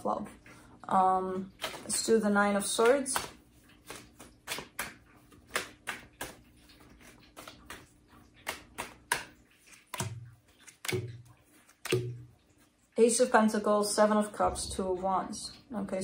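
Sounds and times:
cards clicking and snapping: 2.8 - 12.0.

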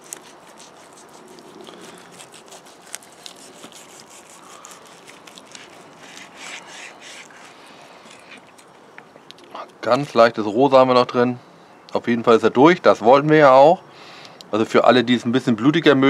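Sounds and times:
serrated knife sawing through meat: 0.0 - 8.6.

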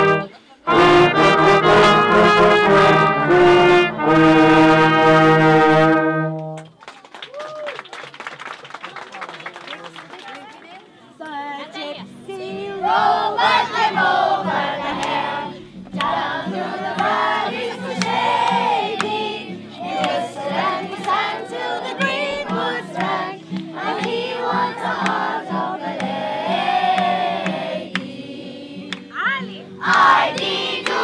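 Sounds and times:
children singing together: 12.2 - 31.0.

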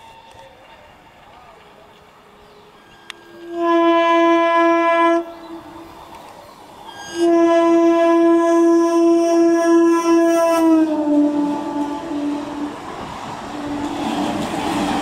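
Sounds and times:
train horn blasts: 2.8 - 6.0, 6.9 - 14.1.

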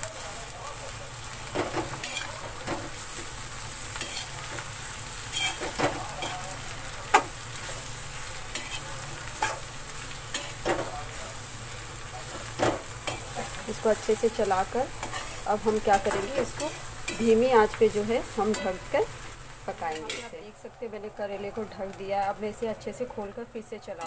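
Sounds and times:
vegetables sizzling in oil: 0.0 - 24.0
spatula scraping metal pan: 15.0 - 17.3.

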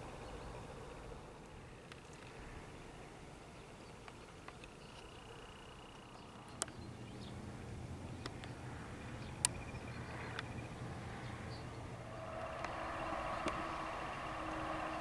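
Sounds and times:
diesel locomotive engine hum: 5.2 - 15.0
high pulsed chirping: 11.6 - 15.0.

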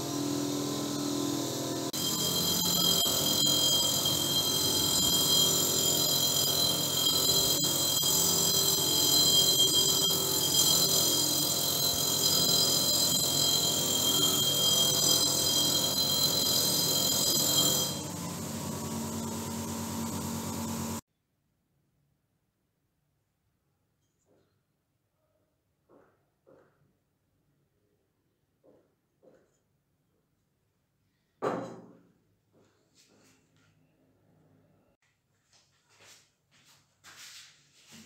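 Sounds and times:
bench grinder motor whine: 0.0 - 21.0.

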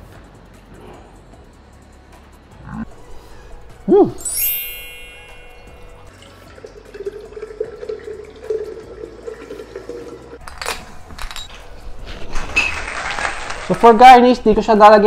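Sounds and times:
liquid pouring into a glass: 6.1 - 10.4.

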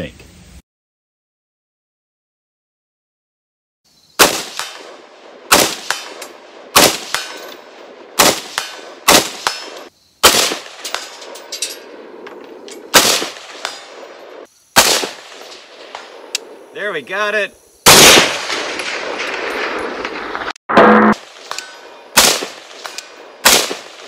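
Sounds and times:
rifle single shots: 4.2 - 12.2, 12.8 - 16.5, 17.8 - 20.5, 21.1 - 24.0.

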